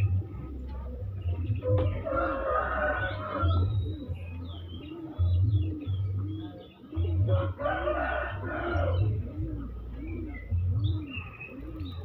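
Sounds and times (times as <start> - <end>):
low repeating pulse: 0.0 - 12.0
small birds chirping: 0.0 - 12.0
rooster crowing: 2.0 - 3.6, 7.3 - 9.0.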